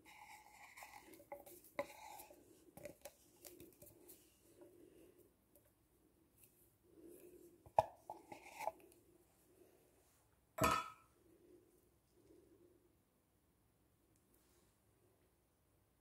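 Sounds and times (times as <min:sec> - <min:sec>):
spatula scraping a tin: 0:00.0 - 0:03.0
fingers working dough in a bowl: 0:00.0 - 0:04.6.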